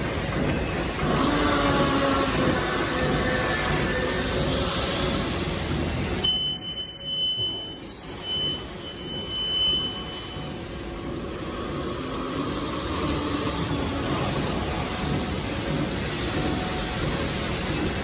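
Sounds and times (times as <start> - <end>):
machine running: 0.0 - 18.0.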